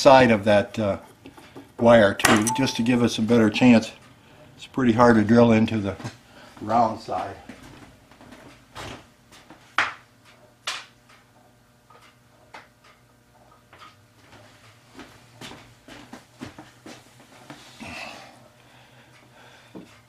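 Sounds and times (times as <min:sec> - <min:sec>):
small metal tools clicking and tapping: 0:02.3 - 0:02.9.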